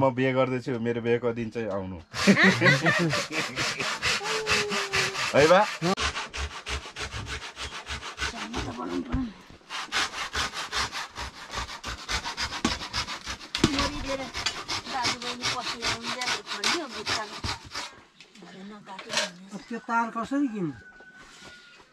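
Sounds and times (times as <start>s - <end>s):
handsaw cutting wood: 2.1s - 18.0s.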